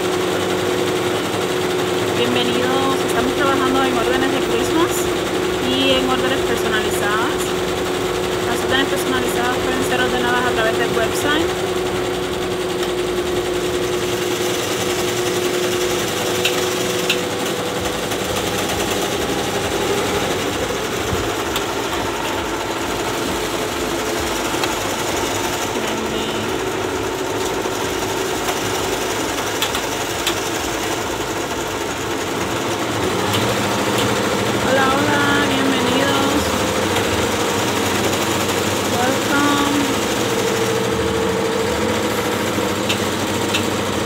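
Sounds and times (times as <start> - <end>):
embroidery machines stitching: 0.0 - 44.0.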